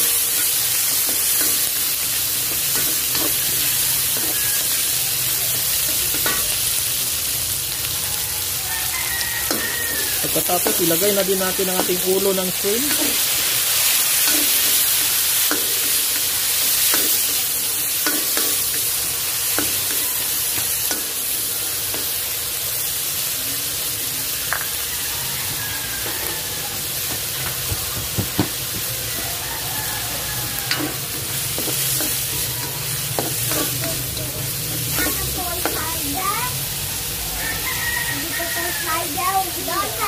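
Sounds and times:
shrimp sizzling in hot oil: 0:00.0 - 0:40.0
utensil knocking against pan: 0:27.1 - 0:29.0.

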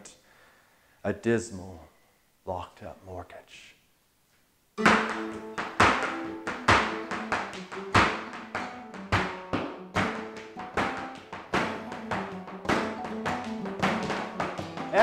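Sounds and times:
flamenco guitar: 0:04.8 - 0:15.0
shoes stamping and tapping floor: 0:04.8 - 0:15.0.

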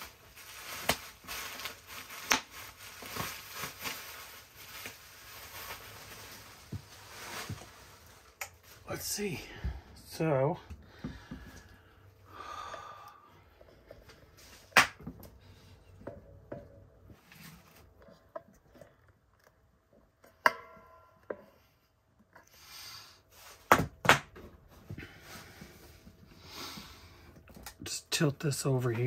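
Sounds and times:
soft rustling: 0:00.0 - 0:09.4.

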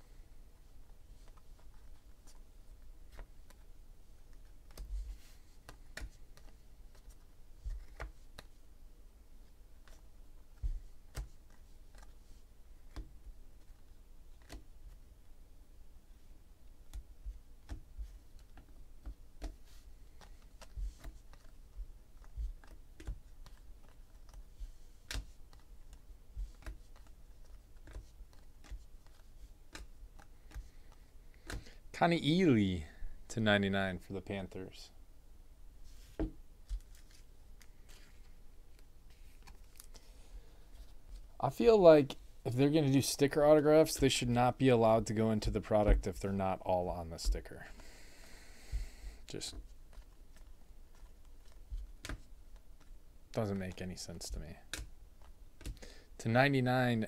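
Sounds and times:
trading cards clicking and tapping: 0:05.6 - 0:08.6, 0:09.8 - 0:12.2, 0:12.8 - 0:13.8, 0:16.9 - 0:31.8, 0:48.7 - 0:55.9.

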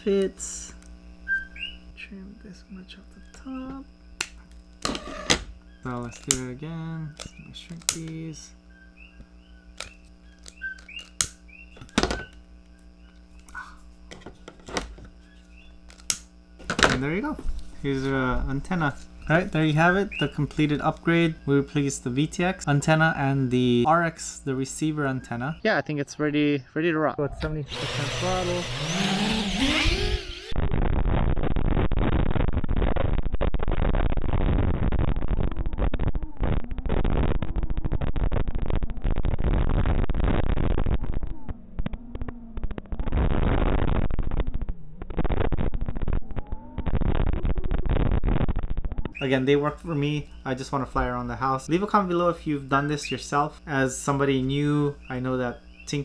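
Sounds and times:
static hiss: 0:00.0 - 0:25.7, 0:27.7 - 0:41.1, 0:42.8 - 0:56.0
low steady hum: 0:00.0 - 0:56.0.

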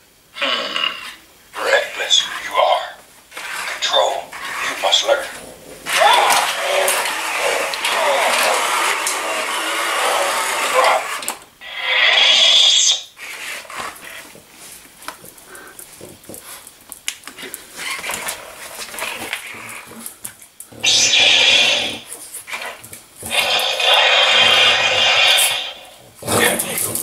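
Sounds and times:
loud hissing bursts: 0:01.5 - 0:14.2, 0:20.8 - 0:26.9
dog snorting and growling: 0:03.4 - 0:14.5, 0:17.8 - 0:27.0
toy electronic voice: 0:05.9 - 0:13.0
lightsaber sound effects: 0:05.9 - 0:13.2, 0:23.3 - 0:25.9.

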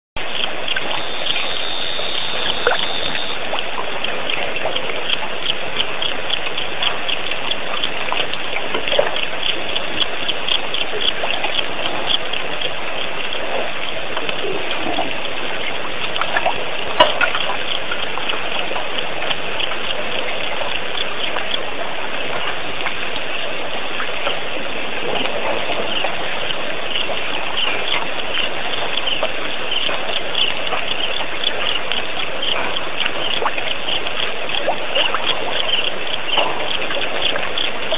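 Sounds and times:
continuous hiss: 0:00.2 - 0:37.9
rapid high chirps: 0:00.3 - 0:03.4.

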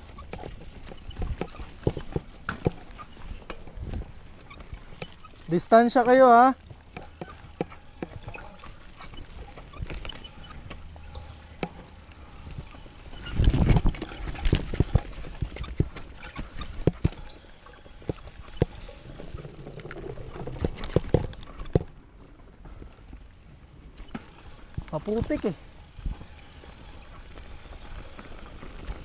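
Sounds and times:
bike frame rattling and clattering: 0:00.0 - 0:22.9
tyres rumbling and wind: 0:00.0 - 0:29.0.

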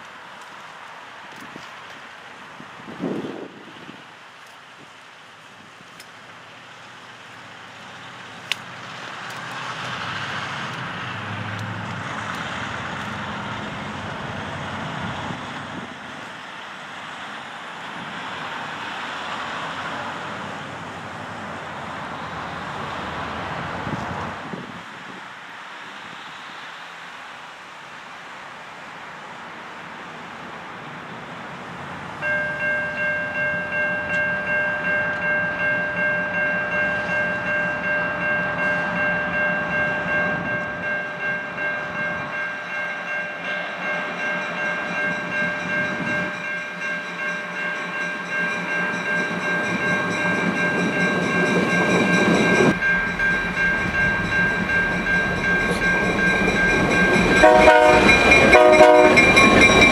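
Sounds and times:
locomotive engine rumble: 0:31.8 - 0:59.9
railway warning bell ringing: 0:32.2 - 0:59.9.

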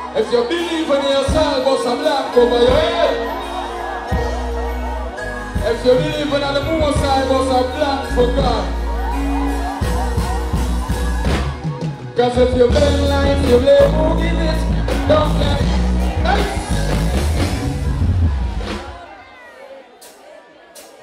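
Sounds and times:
live band playing: 0:00.0 - 0:21.0
heavy bass line: 0:02.2 - 0:11.8, 0:12.4 - 0:19.0
man singing into a microphone: 0:12.2 - 0:17.0.

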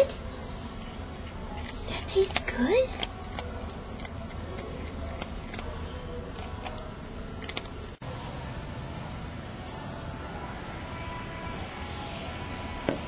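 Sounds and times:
low background hum: 0:00.0 - 0:13.0
cat eating crunching: 0:00.8 - 0:07.9.

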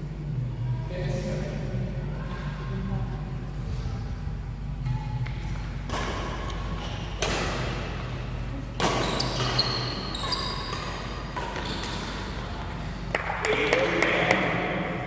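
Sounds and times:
racquets hitting shuttlecock: 0:05.3 - 0:08.0, 0:08.8 - 0:14.5
shoes squeaking on court floor: 0:08.8 - 0:13.0.

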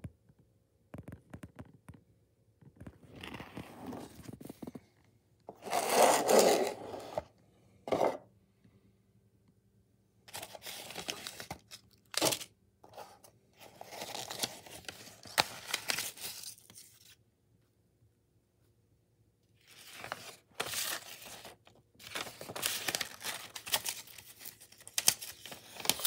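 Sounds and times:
paper rustling and crinkling: 0:10.3 - 0:17.2, 0:19.6 - 0:26.0.

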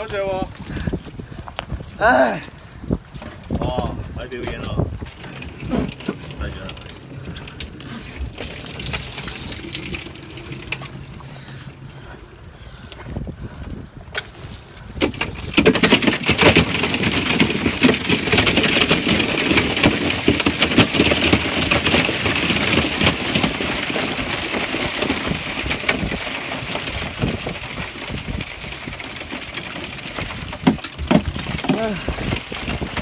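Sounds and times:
crab shells clattering: 0:05.1 - 0:11.2.

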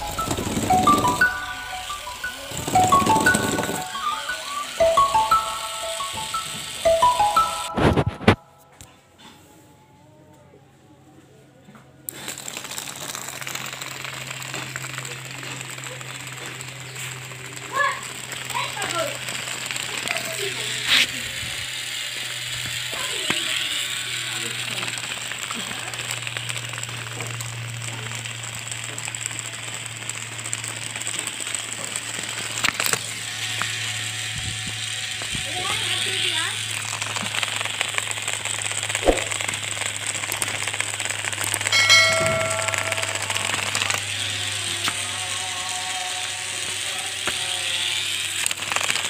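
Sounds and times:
toy car motor rattling: 0:12.1 - 0:42.2, 0:42.8 - 0:49.0.

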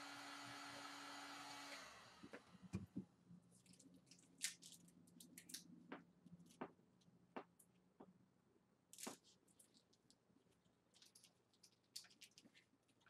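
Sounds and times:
heat gun blower: 0:00.0 - 0:02.7.

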